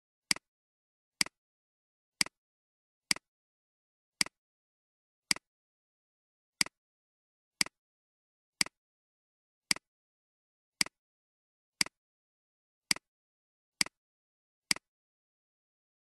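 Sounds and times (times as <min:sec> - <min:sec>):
computer mouse clicks: 0:13.8 - 0:14.0.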